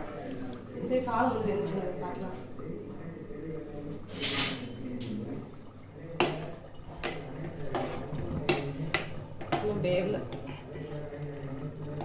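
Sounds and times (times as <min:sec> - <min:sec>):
metal pots and utensils clinking: 0:04.1 - 0:05.1, 0:06.2 - 0:10.5.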